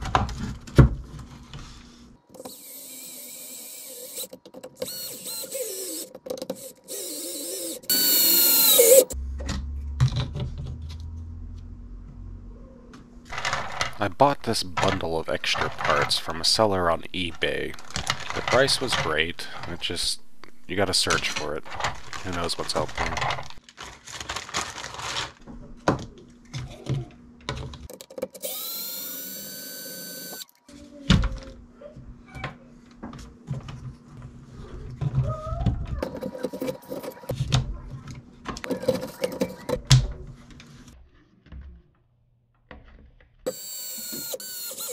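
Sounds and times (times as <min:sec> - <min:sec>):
electric screwdriver whirring: 0:02.4 - 0:09.2, 0:28.3 - 0:30.4, 0:43.5 - 0:44.9
plastic bag crinkling: 0:21.0 - 0:25.5.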